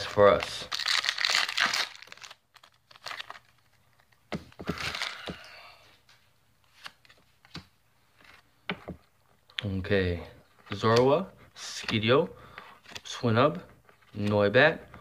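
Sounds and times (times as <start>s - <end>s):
foil wrapper crinkling: 0.0s - 3.7s.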